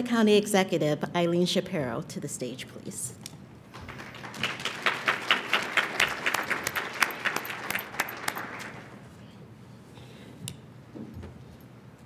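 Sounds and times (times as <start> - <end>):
audience applauding: 3.7 - 9.0.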